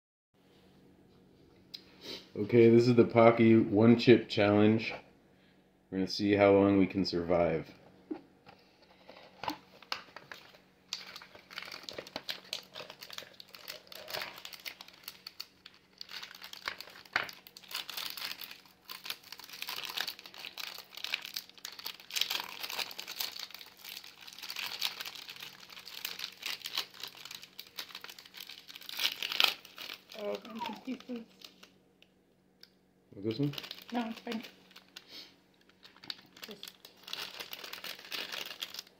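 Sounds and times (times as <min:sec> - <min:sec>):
chip pouches crinkling and tearing: 0:09.4 - 0:31.8, 0:33.3 - 0:38.9.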